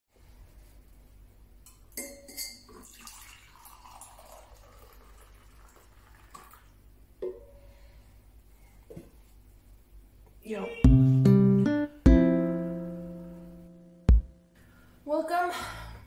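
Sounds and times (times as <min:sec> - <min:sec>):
ceramic clinks: 0:01.7 - 0:02.8
liquid pouring into a mug: 0:02.5 - 0:06.8.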